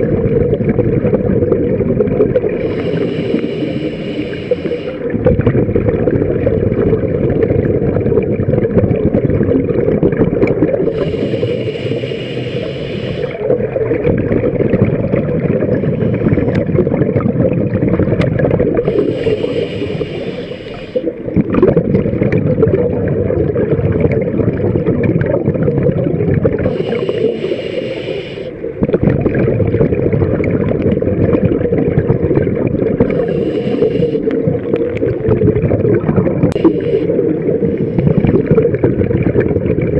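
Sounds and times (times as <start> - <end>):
exhaled bubbles gurgling: 0.0 - 39.9
regulator inhalation hiss: 2.6 - 5.1, 10.9 - 13.4, 18.8 - 21.2, 26.6 - 28.8, 33.1 - 34.4, 36.6 - 38.4.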